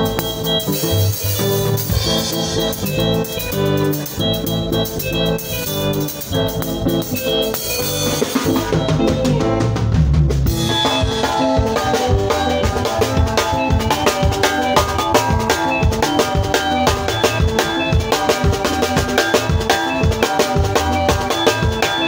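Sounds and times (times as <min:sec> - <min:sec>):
dance band playing: 0:00.0 - 0:22.0
drums: 0:00.0 - 0:22.0.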